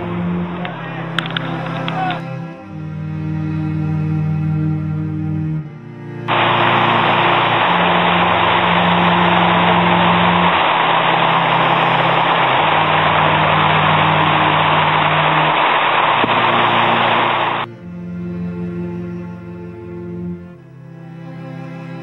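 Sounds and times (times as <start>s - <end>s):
heavy rain pouring: 0.0s - 2.2s, 6.3s - 17.7s
slow music of low notes: 0.0s - 22.0s.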